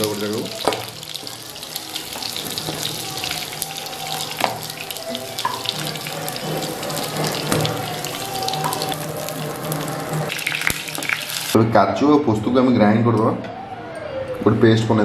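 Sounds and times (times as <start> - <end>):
oil sizzling in frying pan: 0.0 - 11.6.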